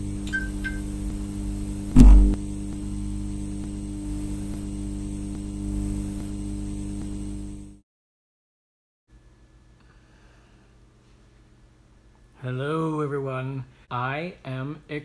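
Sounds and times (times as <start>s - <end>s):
neon sign electrical hum: 0.0s - 7.8s
heavy low thump: 2.0s - 2.4s.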